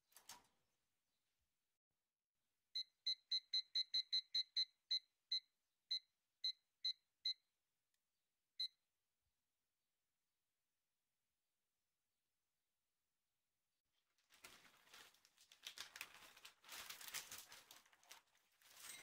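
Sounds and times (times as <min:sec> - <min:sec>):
kitchen timer beeps: 0:02.8 - 0:07.4.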